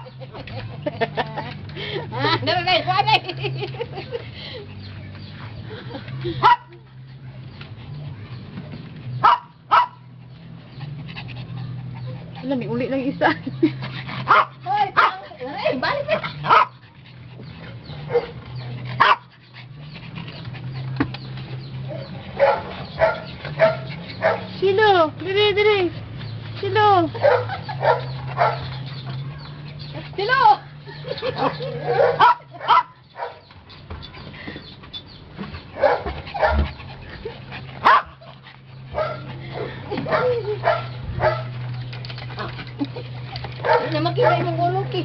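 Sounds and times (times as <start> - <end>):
small dog barking: 6.4 - 6.7, 9.2 - 10.0, 14.3 - 15.2, 16.4 - 16.8, 19.0 - 19.3, 31.9 - 33.4, 37.8 - 38.2.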